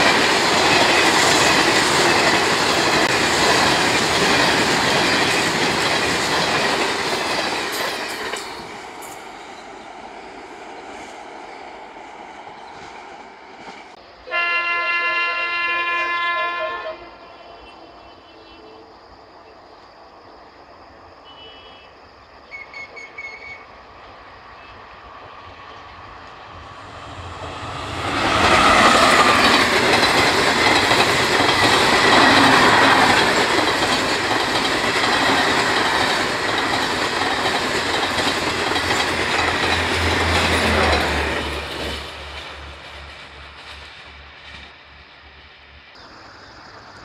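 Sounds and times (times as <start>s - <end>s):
wheel-on-rail rushing noise: 0.0s - 14.0s, 25.4s - 45.0s
train passing at high speed: 0.0s - 21.2s, 22.0s - 47.0s.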